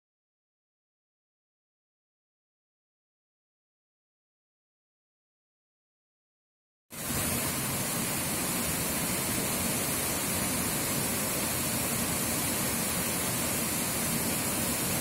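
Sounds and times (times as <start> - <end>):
waterfall rushing onto rocks: 7.0 - 15.0.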